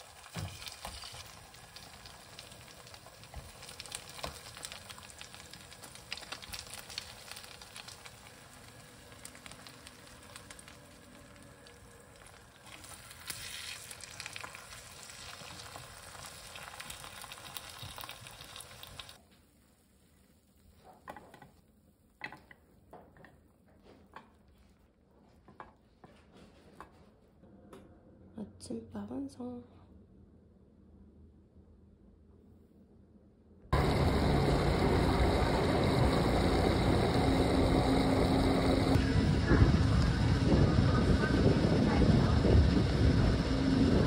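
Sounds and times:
food sizzling in a frying pan: 0.0 - 19.2.

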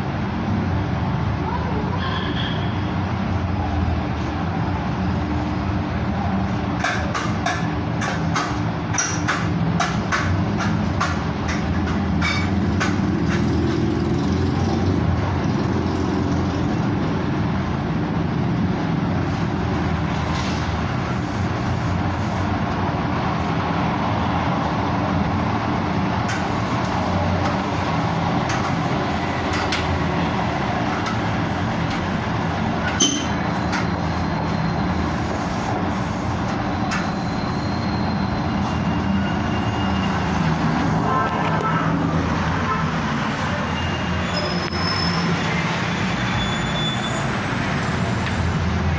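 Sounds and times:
traffic engine rumble: 0.0 - 48.9.

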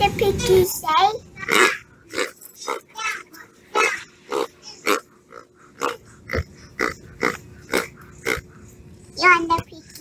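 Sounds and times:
pig oinking: 1.4 - 2.9, 3.8 - 8.6.

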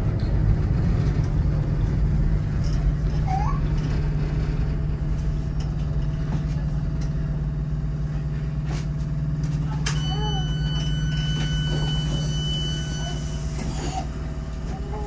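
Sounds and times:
train traction hum: 0.0 - 15.0
wheel and track rumble: 0.0 - 15.0.

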